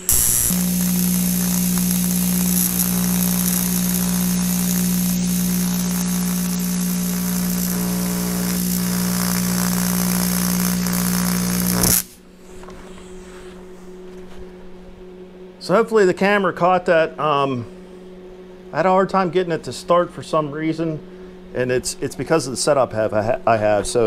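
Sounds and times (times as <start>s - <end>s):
welding arc buzzing and hissing: 0.0s - 12.2s.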